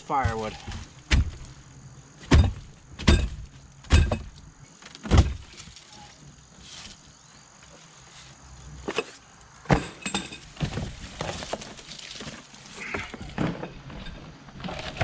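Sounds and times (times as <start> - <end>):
heavy knocks on wood: 0.2 - 1.5, 2.2 - 4.3.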